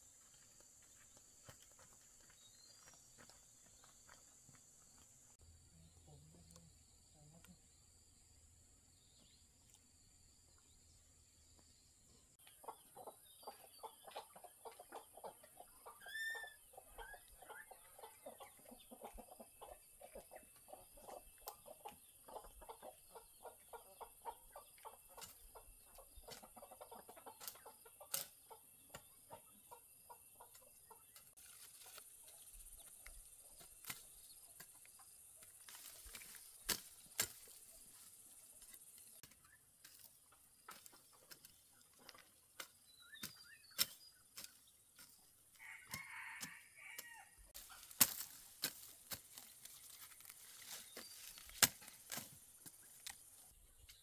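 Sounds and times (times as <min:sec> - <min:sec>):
chickens clucking: 0:12.2 - 0:54.0.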